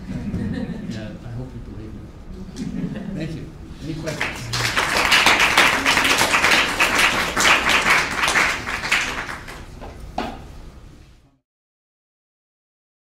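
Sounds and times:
audience applauding: 4.0s - 9.8s.

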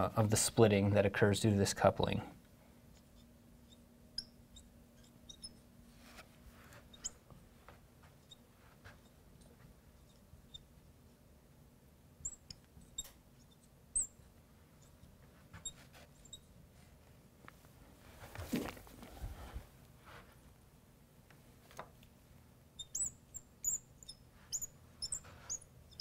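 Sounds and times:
marker squeaking on glass: 2.9s - 5.7s, 6.7s - 7.2s, 8.2s - 10.7s, 12.2s - 16.5s, 22.8s - 26.0s.

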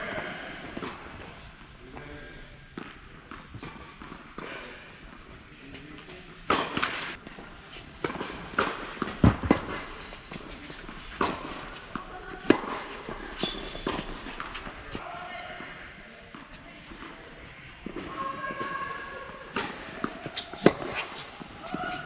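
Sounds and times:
tennis ball bouncing on court: 6.3s - 14.8s, 19.5s - 22.0s
tennis ball struck by rackets: 6.4s - 7.4s, 8.0s - 14.8s, 19.5s - 21.2s.

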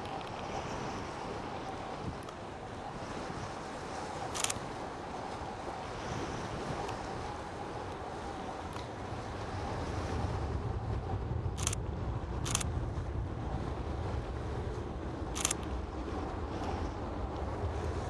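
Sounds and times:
steady low rumble: 7.5s - 18.0s
camera shutter clicks: 15.4s - 15.7s.

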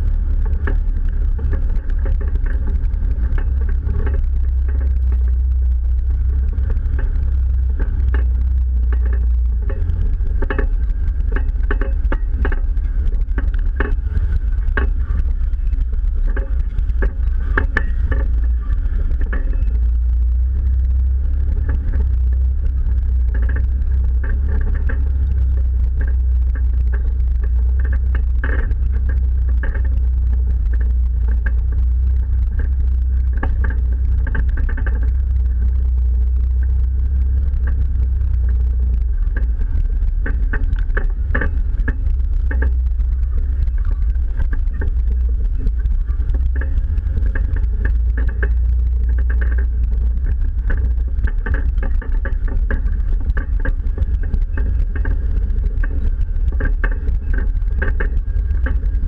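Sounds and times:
body and suspension rattles: 0.0s - 59.0s
jeep engine running low: 0.0s - 59.0s.

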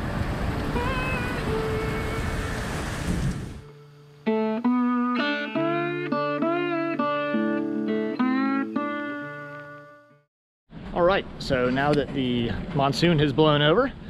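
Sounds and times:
wind and rain: 0.0s - 3.7s
plucked guitar tune: 0.8s - 2.3s, 3.6s - 10.2s.

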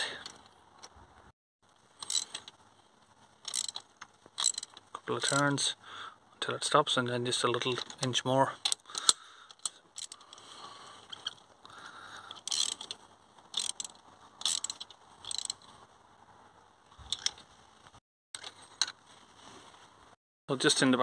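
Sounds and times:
hand ratchet clicking: 2.0s - 2.5s, 3.4s - 3.8s, 4.4s - 5.4s, 8.6s - 10.4s, 12.4s - 15.6s.

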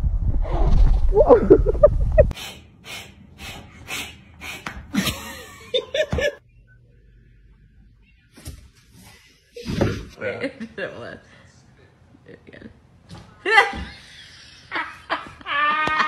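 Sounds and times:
wind rumbling on microphone: 0.0s - 2.3s.

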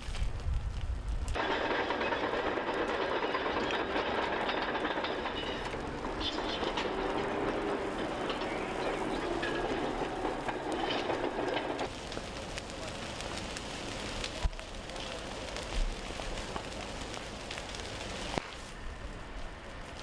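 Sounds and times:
burning brush crackling: 0.0s - 20.0s
fire rushing noise: 0.0s - 20.0s.

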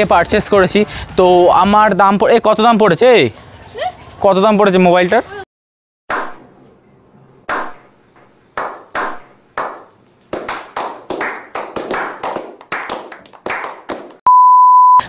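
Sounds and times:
people clapping: 7.5s - 7.8s, 8.6s - 14.2s.

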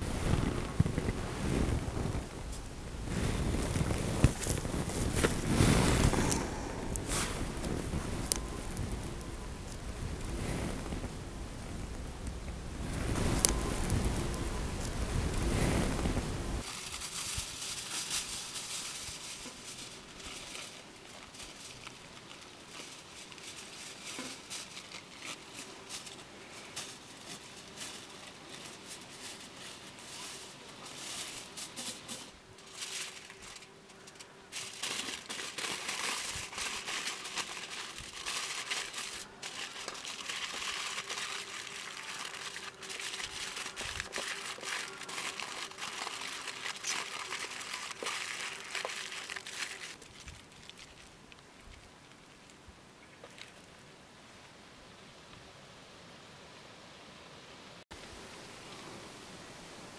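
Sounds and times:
aluminium foil crinkling: 0.0s - 11.0s, 16.6s - 52.6s.

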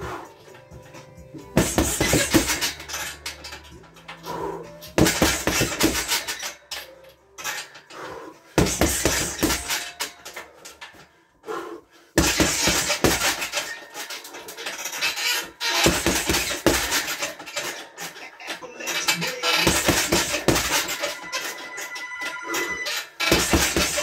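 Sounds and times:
metal hanger rattling: 0.4s - 11.2s, 12.2s - 24.0s
punches on heavy bag: 1.6s - 2.7s, 5.0s - 6.2s, 8.6s - 9.9s, 12.2s - 13.5s, 15.8s - 17.2s, 19.6s - 21.0s, 23.3s - 24.0s.

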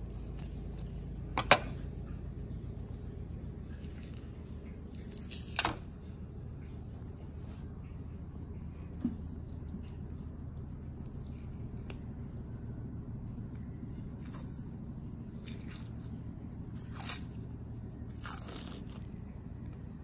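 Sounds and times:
steady low hum: 0.0s - 20.0s
sausage casing peeling: 3.7s - 5.8s, 14.1s - 19.2s.

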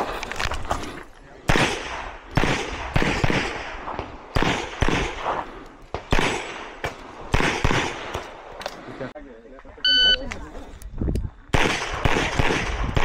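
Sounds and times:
gunshots with echo: 1.5s - 5.4s, 6.0s - 8.5s, 11.5s - 13.0s.

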